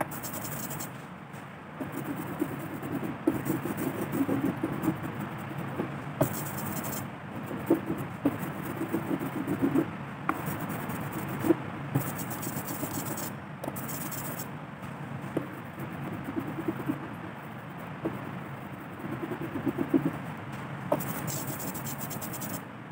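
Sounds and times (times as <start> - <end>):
ink roller rasping: 20.9 - 22.6.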